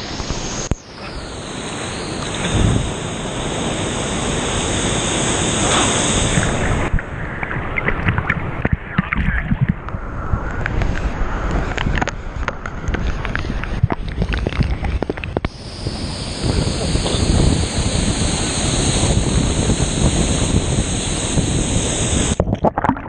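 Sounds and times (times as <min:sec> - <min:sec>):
waterfall rushing: 0:00.0 - 0:06.9, 0:15.5 - 0:22.4
water splashing against camera: 0:05.7 - 0:15.6, 0:21.8 - 0:23.0.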